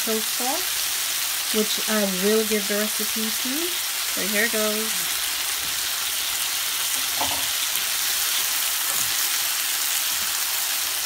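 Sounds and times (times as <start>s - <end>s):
vegetables sizzling in a pan: 0.0s - 11.0s
spatula turning food: 4.6s - 11.0s.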